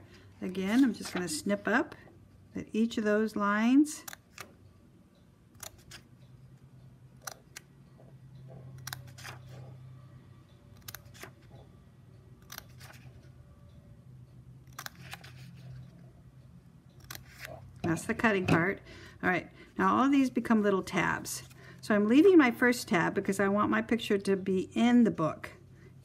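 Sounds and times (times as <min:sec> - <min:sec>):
scissors snipping paper: 0:08.8 - 0:09.5, 0:14.6 - 0:15.6, 0:17.0 - 0:17.6.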